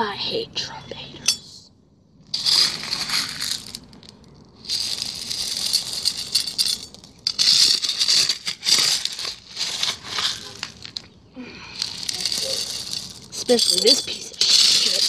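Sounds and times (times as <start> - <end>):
gravel scooped with metal spoon: 4.6 - 11.1, 11.7 - 15.0.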